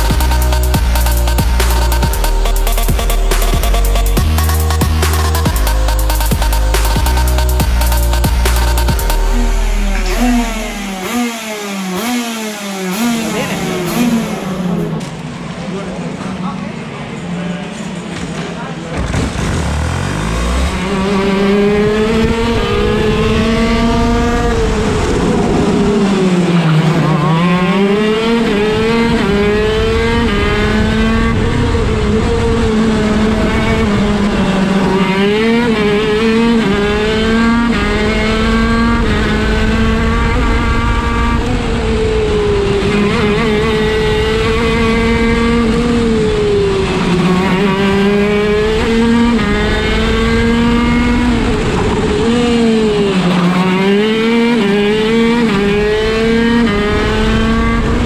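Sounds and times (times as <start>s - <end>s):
kart engine running hard: 0.0s - 58.0s.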